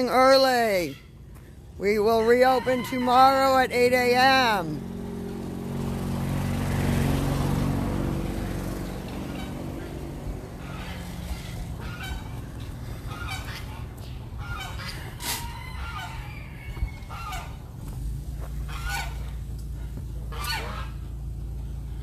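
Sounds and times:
geese honking: 0.0 - 4.7, 8.8 - 21.6
vehicle motor humming: 1.2 - 22.0.

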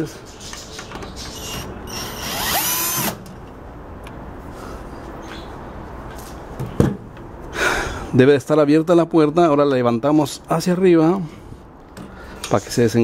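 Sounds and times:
cordless drill motor whining: 1.9 - 3.2.

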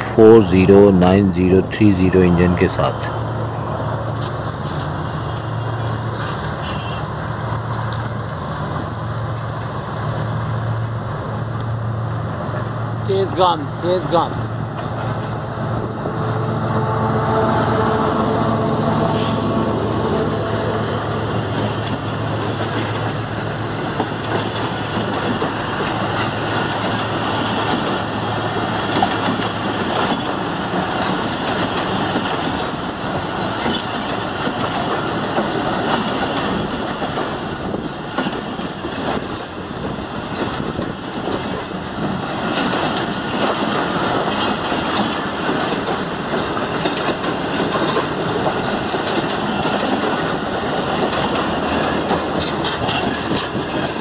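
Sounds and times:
diesel locomotive engine hum: 0.0 - 54.0
train coaches rumbling past: 0.0 - 54.0
wheels clicking over rail joints: 21.4 - 54.0.

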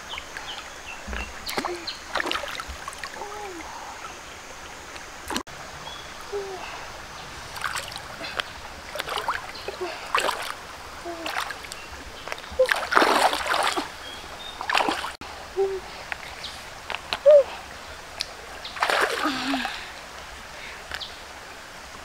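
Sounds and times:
running water: 0.0 - 22.0
hands splashing in water: 7.6 - 9.5, 10.1 - 10.6, 11.2 - 13.9, 14.6 - 15.2, 18.8 - 19.7.

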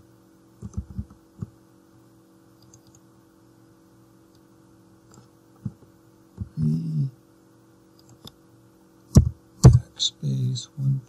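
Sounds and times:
computer mouse clicks: 2.6 - 3.0, 8.0 - 8.4.

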